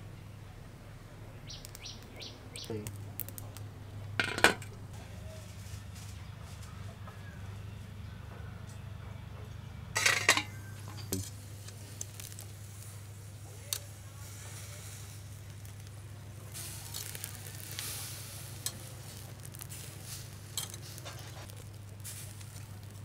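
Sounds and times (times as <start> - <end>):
meat sizzling on a grill: 10.0 - 23.0
metal tongs clicking on grate: 20.6 - 21.2.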